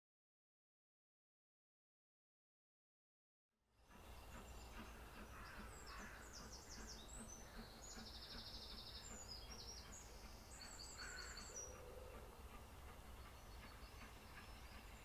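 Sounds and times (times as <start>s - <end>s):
songbirds chirping and trilling: 3.8s - 15.0s.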